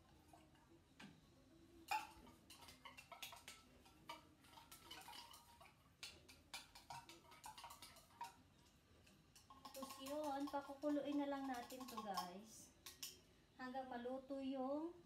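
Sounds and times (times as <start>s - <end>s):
utensil scraping metal can: 9.5s - 12.5s.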